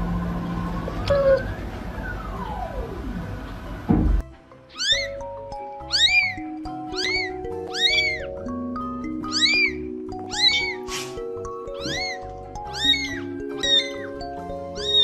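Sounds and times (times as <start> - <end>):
kitten meowing: 4.7 - 8.4, 9.2 - 15.0.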